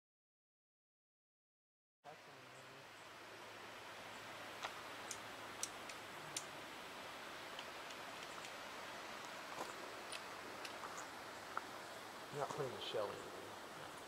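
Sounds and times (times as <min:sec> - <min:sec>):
outdoor hiss: 0:02.1 - 0:14.0
light clicks and ticks: 0:04.6 - 0:06.5, 0:09.2 - 0:11.7.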